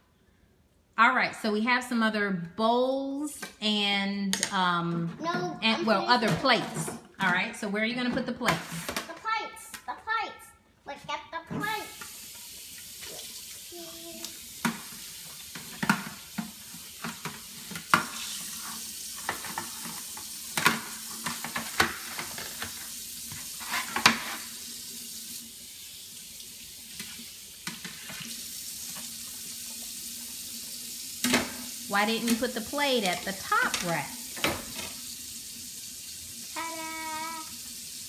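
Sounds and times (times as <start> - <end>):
faucet running into metal sink: 11.8 - 38.0.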